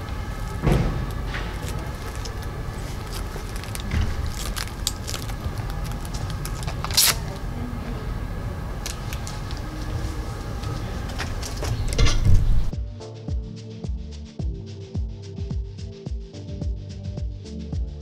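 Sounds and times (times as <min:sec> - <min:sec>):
low outdoor rumble: 0:00.0 - 0:12.8.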